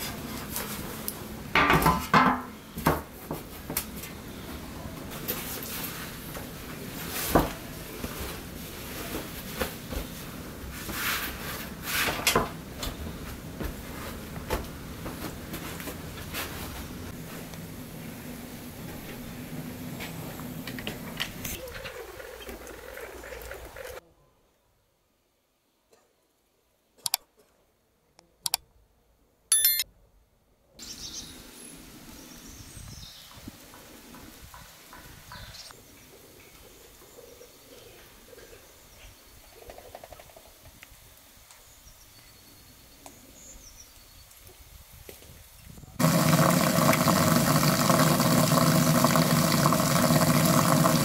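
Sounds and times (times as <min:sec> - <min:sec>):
sharp clicks: 0:27.0 - 0:27.2, 0:28.4 - 0:28.6
brief ringing tone: 0:29.5 - 0:29.8.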